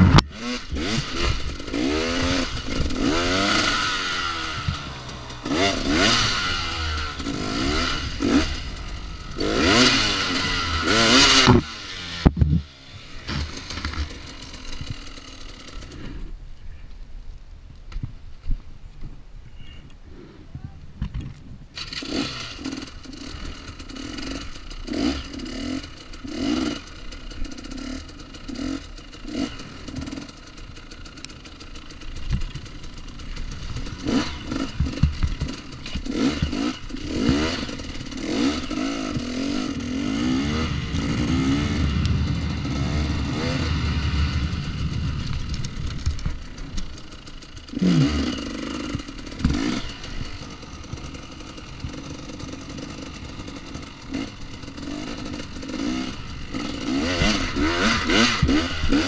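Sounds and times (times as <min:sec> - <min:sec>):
dirt bike engine revving: 0:00.0 - 0:16.3, 0:21.8 - 0:59.0.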